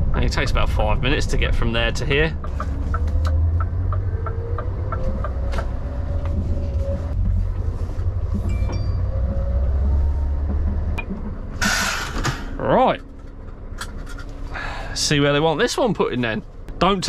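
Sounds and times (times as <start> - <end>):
diesel truck engine rumbling: 0.0 - 17.0.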